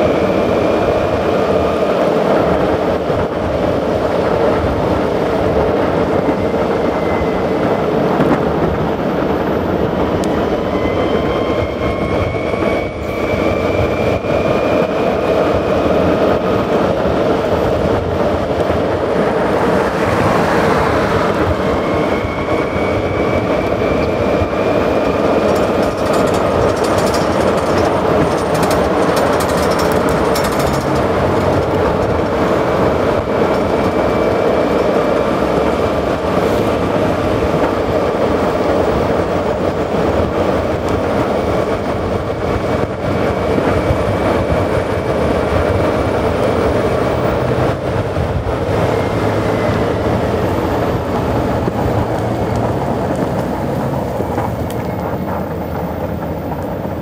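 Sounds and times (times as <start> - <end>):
skateboard wheels rolling on asphalt: 0.0 - 11.7, 12.5 - 57.0
wheels clicking over pavement cracks: 25.2 - 34.1, 49.6 - 56.9.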